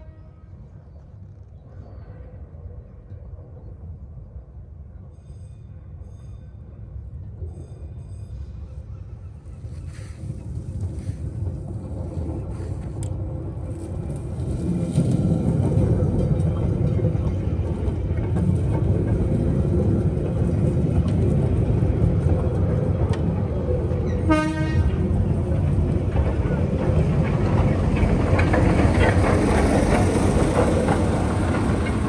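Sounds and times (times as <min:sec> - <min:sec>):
vehicle engine rumbling: 0:09.2 - 0:32.0.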